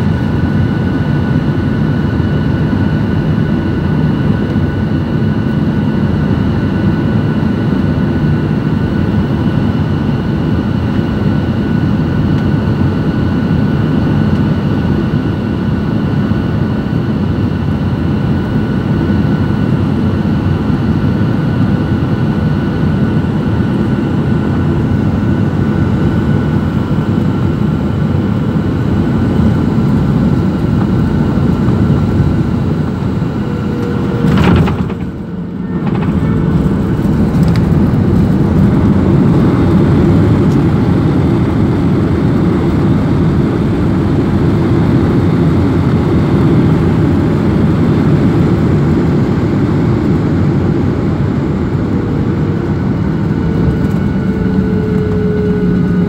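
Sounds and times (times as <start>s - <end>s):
jet engine and airflow rumble: 0.0s - 56.0s
thin steady whine: 18.0s - 56.0s.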